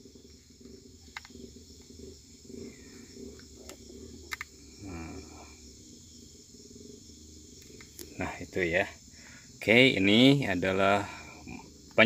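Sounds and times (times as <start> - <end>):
crickets trilling: 0.0 - 12.0
sharp clicks: 3.4 - 4.5.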